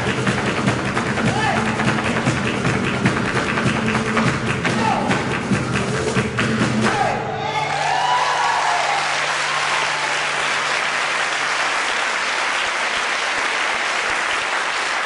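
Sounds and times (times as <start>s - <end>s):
audience applauding: 7.6s - 15.0s.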